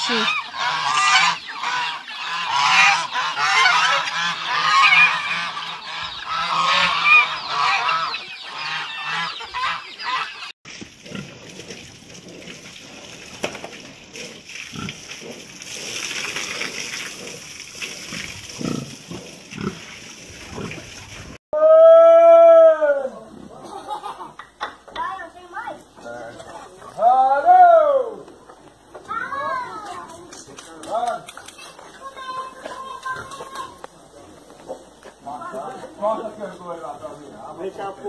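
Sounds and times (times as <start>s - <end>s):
geese honking: 0.0s - 10.5s
ducks and chickens calling: 0.0s - 12.4s
hose spraying water: 10.7s - 21.4s
pig grunts: 14.1s - 19.8s.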